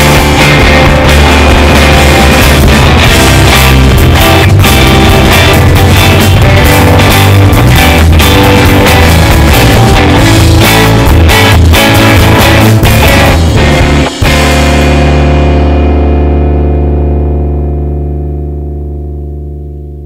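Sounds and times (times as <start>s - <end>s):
steady drum beat: 0.0s - 15.5s
loud rock music: 0.0s - 19.8s
electric guitar: 0.0s - 20.0s.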